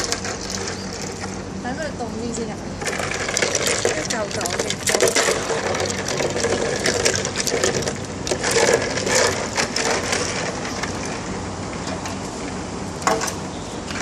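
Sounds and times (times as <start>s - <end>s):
water sloshing in bucket: 0.0s - 1.6s, 2.3s - 14.0s
ice cubes clinking: 2.8s - 10.8s.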